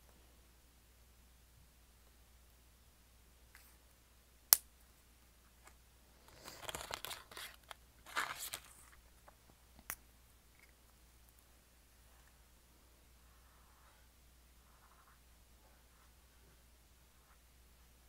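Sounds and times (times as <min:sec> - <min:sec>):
scratchy rustling: 0:06.2 - 0:09.1, 0:13.2 - 0:17.5.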